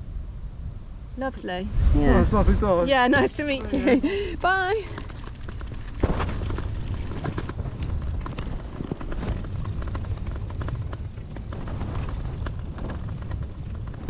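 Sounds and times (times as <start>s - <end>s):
wind rumbling on microphone: 0.0s - 14.0s
bicycle clicks and rattles: 4.4s - 14.0s.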